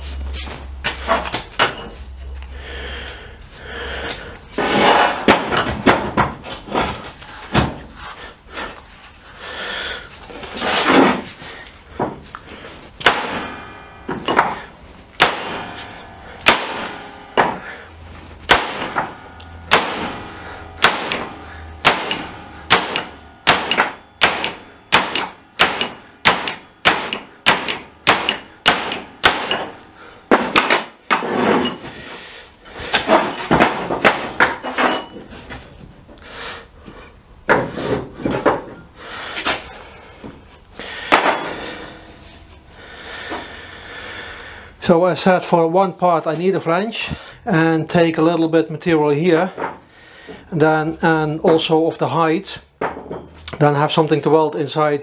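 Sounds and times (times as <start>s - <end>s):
hammer striking a metal punch: 13.0s - 14.6s, 15.2s - 17.8s, 18.4s - 31.2s.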